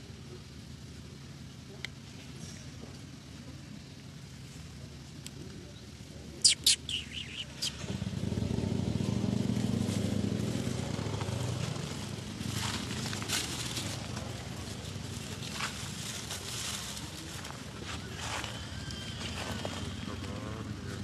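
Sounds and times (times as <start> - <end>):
vehicle engine passing: 6.5 - 21.0.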